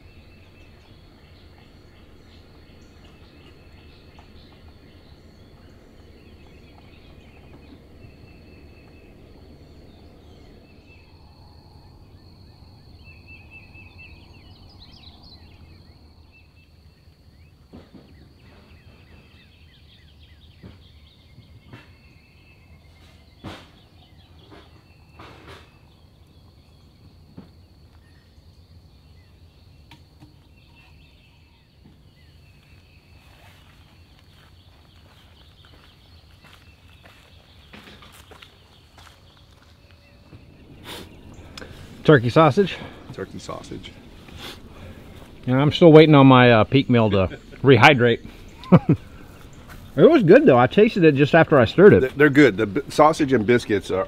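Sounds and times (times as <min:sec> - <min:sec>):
birds chirping: 0:00.0 - 0:54.0
low rumble: 0:39.7 - 0:54.0.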